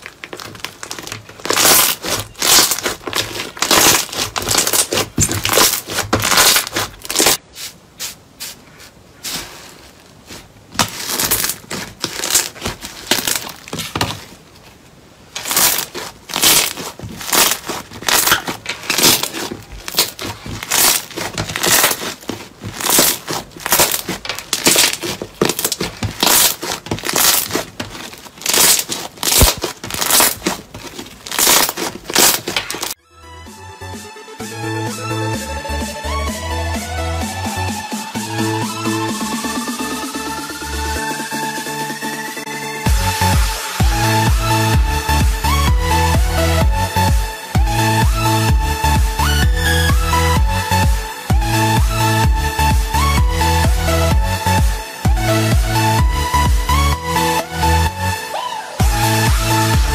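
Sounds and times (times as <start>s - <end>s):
slime squishing and crackling: 0.0s - 7.4s, 9.3s - 14.4s, 15.3s - 33.0s.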